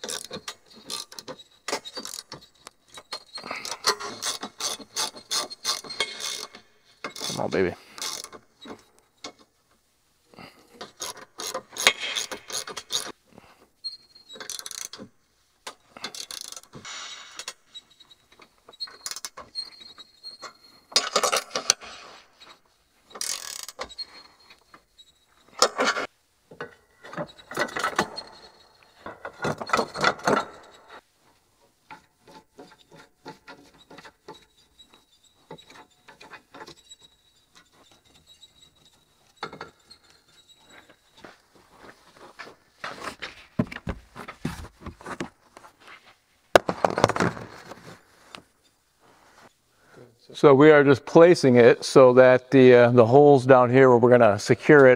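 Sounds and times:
socket ratchet clicking: 0:23.2 - 0:23.9.

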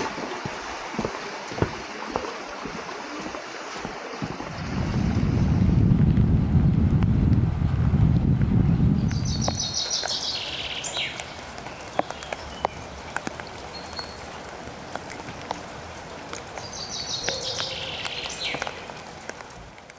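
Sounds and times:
rain dripping on leaves: 0:00.0 - 0:19.9
wind rumble on microphone: 0:04.3 - 0:10.8
songbird singing: 0:08.7 - 0:19.0.

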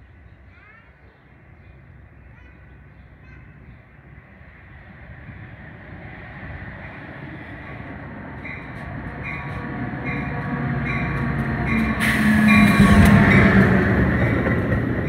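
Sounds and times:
diesel locomotive passing: 0:00.0 - 0:15.0
locomotive bell ringing: 0:08.5 - 0:14.6.

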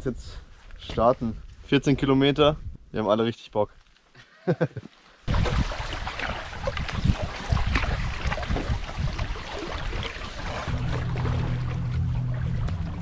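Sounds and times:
wind buffeting microphone: 0:05.3 - 0:10.8
water splashing from paddling: 0:05.3 - 0:13.0.

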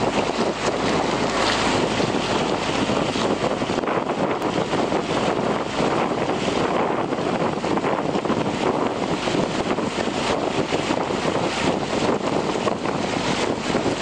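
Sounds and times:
wind noise on microphone: 0:00.0 - 0:14.0.

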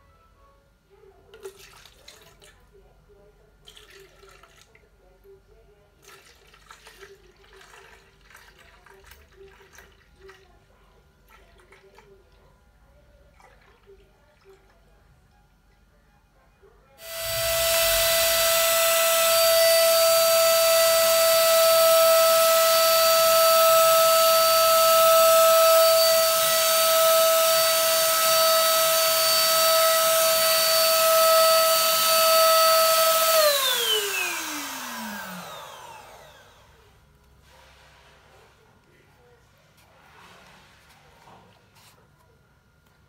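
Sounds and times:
spray gun motor whine: 0:17.0 - 0:36.8.

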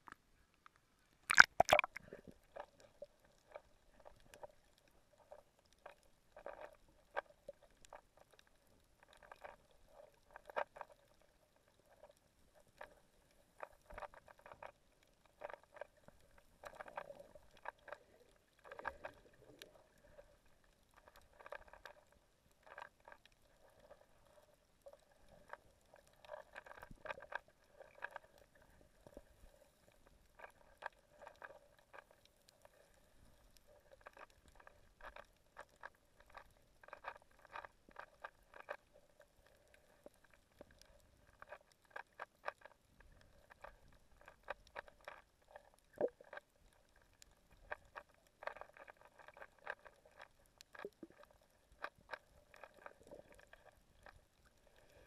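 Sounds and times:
underwater clicks and crackles: 0:00.0 - 0:55.0
splash into water: 0:01.3 - 0:02.0
low underwater gurgle: 0:01.3 - 0:07.7, 0:45.0 - 0:46.4.

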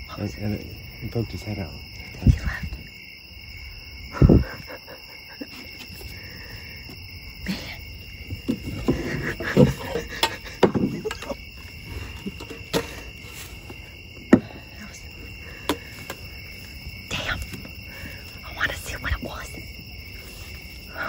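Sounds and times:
night insects chirring: 0:00.0 - 0:21.0
knocks and thumps: 0:08.2 - 0:11.4, 0:12.0 - 0:14.8.

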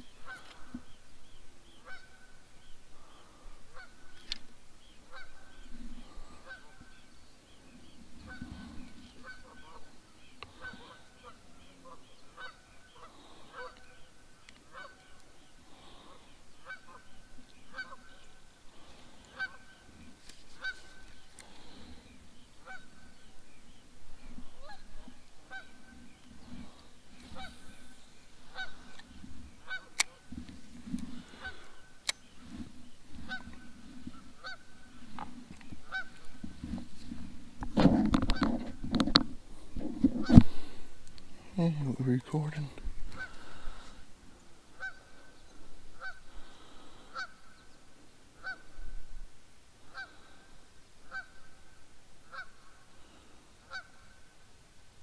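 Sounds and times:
geese honking: 0:00.1 - 0:00.9, 0:01.7 - 0:04.4, 0:05.0 - 0:07.2, 0:08.2 - 0:23.3, 0:24.3 - 0:30.3, 0:31.1 - 0:35.0, 0:35.6 - 0:36.4, 0:40.2 - 0:40.6, 0:42.4 - 0:44.0, 0:44.7 - 0:47.6, 0:48.4 - 0:48.8, 0:49.9 - 0:52.8, 0:53.6 - 0:54.2.

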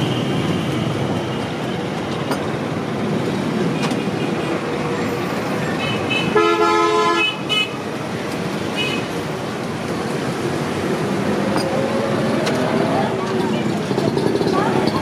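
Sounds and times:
street traffic: 0:00.0 - 0:15.0
vehicle horn honking: 0:05.9 - 0:07.8.

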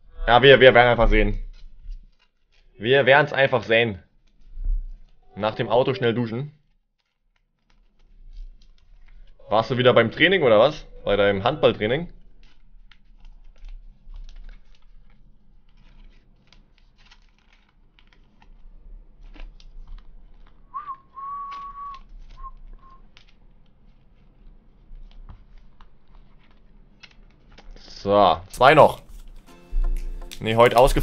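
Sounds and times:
card sleeves clicking and rustling: 0:01.5 - 0:03.2, 0:07.0 - 0:10.1, 0:11.7 - 0:27.8, 0:28.6 - 0:31.0
person whistling: 0:20.7 - 0:23.0.

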